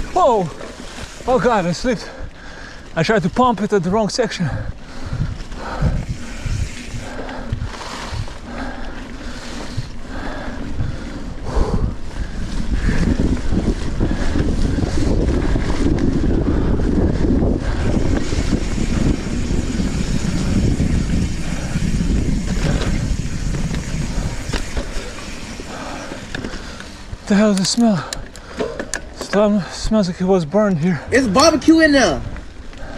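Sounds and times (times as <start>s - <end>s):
bike rolling over sandy trail: 0.0s - 2.1s, 4.8s - 29.7s
wind buffeting microphone: 0.0s - 32.9s
bike clicks and knocks: 21.8s - 29.6s.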